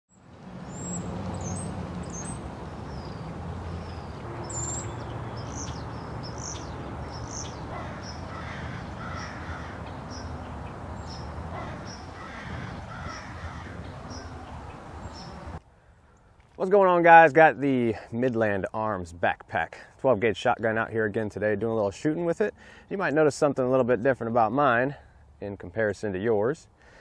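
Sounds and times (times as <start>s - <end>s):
small birds chirping: 0.1s - 16.4s
crows cawing: 6.3s - 14.5s.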